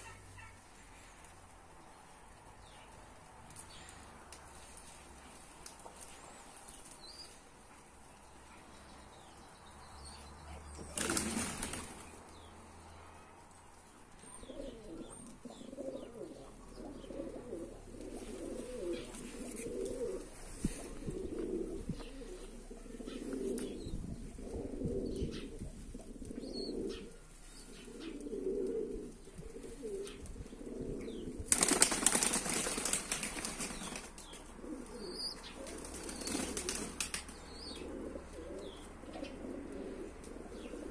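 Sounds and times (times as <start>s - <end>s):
wing flapping: 10.9s - 12.2s, 31.4s - 34.2s, 35.7s - 37.2s
pigeons cooing: 14.2s - 32.9s, 33.5s - 40.9s.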